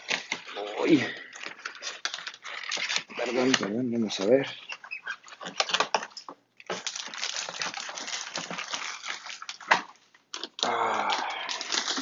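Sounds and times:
cardboard packaging rustling: 0.0 - 12.0
plastic bag crinkling: 0.0 - 12.0.

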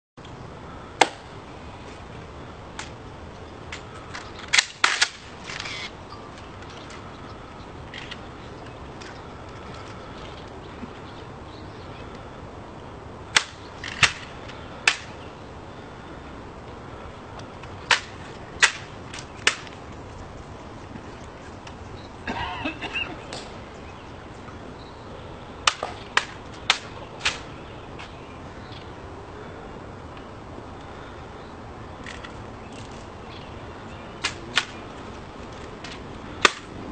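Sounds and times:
rifle clacks: 3.7 - 5.8, 17.9 - 19.8, 35.6 - 36.7
metallic clicks of rifles handled: 7.9 - 10.6, 32.0 - 33.1.

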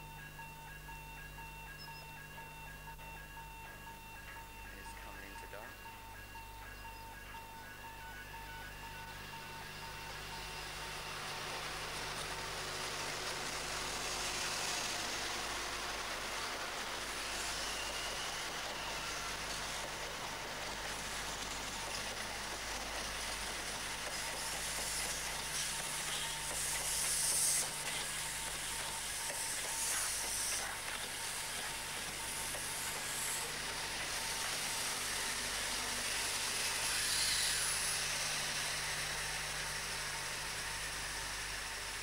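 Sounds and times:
train passing at speed: 0.0 - 42.0.

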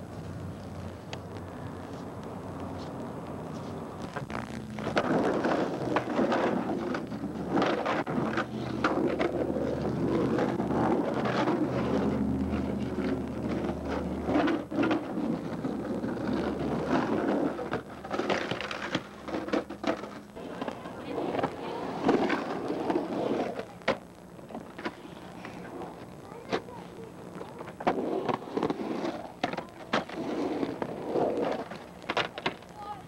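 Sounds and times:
skateboard wheels rolling on concrete: 0.0 - 33.0
skateboard clacks: 2.7 - 33.0.

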